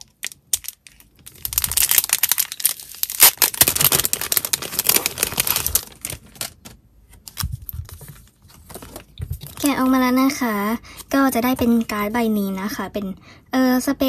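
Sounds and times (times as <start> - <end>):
plastic sleeve crinkling: 0.0 - 10.0.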